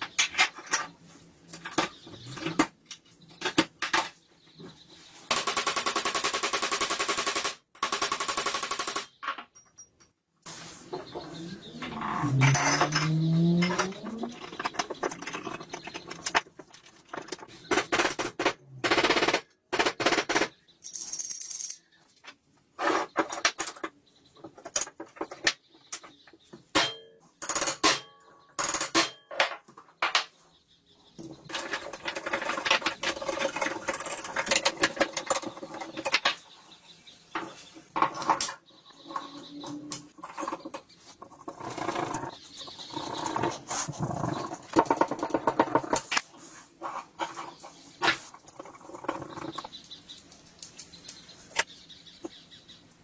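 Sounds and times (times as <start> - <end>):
metal parts clicking and knocking: 11.8 - 22.4, 26.7 - 30.3.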